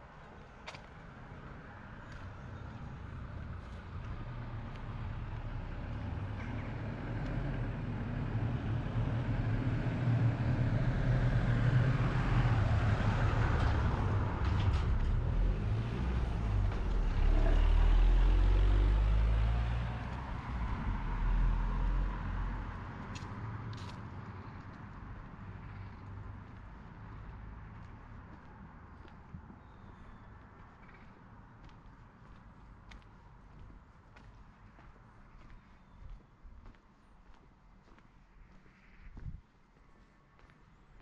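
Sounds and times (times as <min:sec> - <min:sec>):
vehicle passing by: 0:03.0 - 0:29.1.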